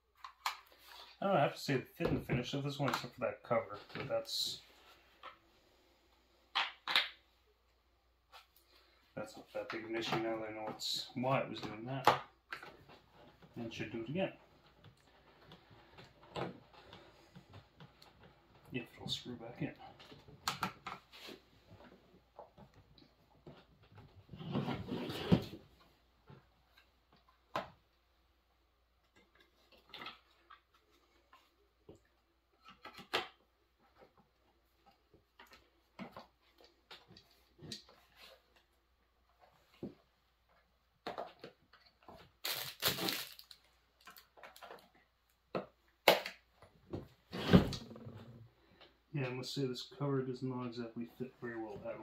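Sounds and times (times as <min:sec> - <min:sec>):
plastic clicks and clatter: 0:43.2 - 0:46.6.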